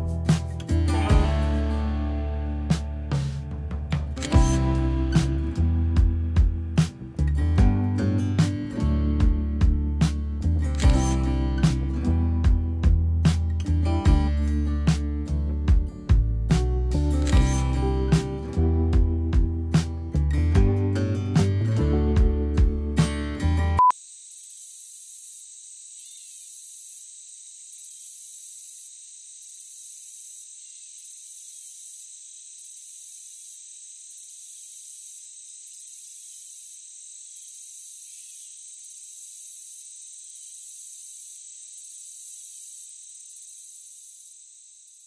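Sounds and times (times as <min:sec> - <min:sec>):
high insect buzz: 0:00.0 - 0:07.3, 0:08.0 - 0:16.1, 0:23.0 - 0:45.0
insects trilling: 0:23.9 - 0:45.0.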